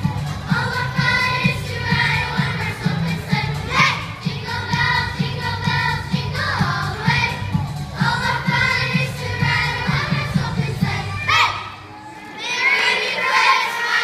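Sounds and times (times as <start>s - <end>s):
children's choir singing: 0.0s - 14.0s
children shouting together: 11.0s - 14.0s.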